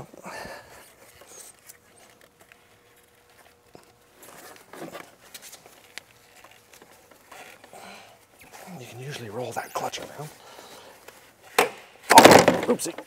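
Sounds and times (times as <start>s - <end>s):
gloves rubbing on rubber belt: 0.6s - 11.5s.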